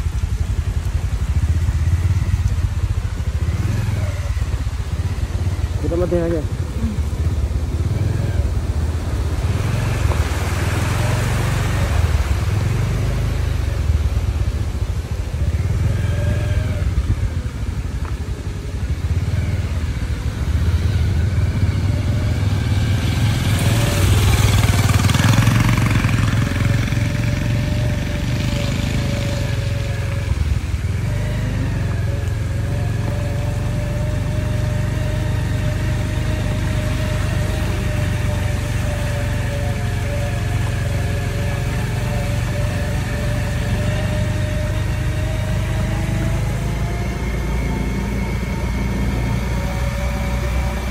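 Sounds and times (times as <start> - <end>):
rushing wind: 0.0 - 33.0
motorbike engine running: 0.0 - 50.9.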